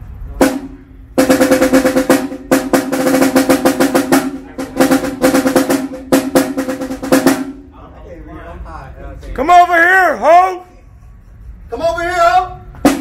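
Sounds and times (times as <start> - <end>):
marching drums with rolls: 0.4 - 7.7, 12.5 - 13.0.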